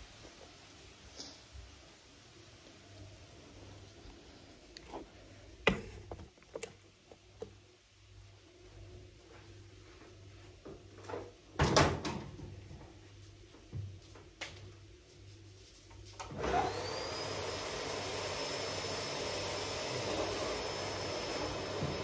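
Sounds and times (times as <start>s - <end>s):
vacuum cleaner motor whining: 16.3s - 22.0s.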